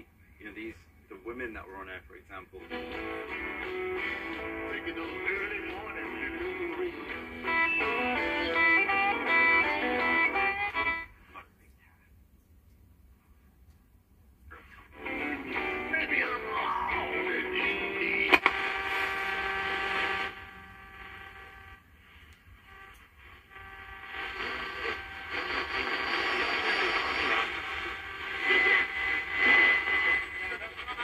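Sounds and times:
radio broadcast and static: 0:00.0 - 0:12.0, 0:14.5 - 0:31.0
steady radio whistle: 0:04.2 - 0:11.0, 0:14.5 - 0:21.8, 0:22.6 - 0:31.0
radio dial click: 0:18.3 - 0:18.7.

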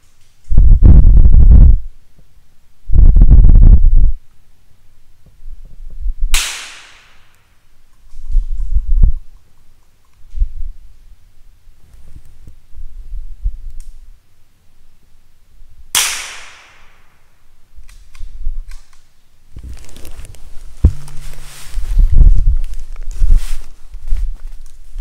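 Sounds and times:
low rumbling noise: 0:00.5 - 0:06.4, 0:19.5 - 0:25.0
gunshot with echo: 0:06.4 - 0:07.3, 0:16.0 - 0:17.1.

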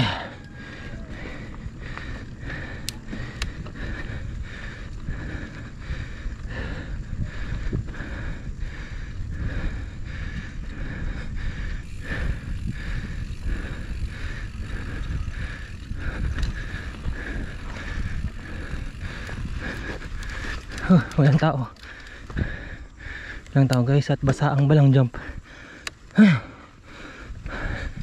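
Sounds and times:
pulsing whir: 0:00.0 - 0:21.2
bicycle tyre and drivetrain noise: 0:00.0 - 0:28.0
wind buffeting microphone: 0:00.0 - 0:28.0.

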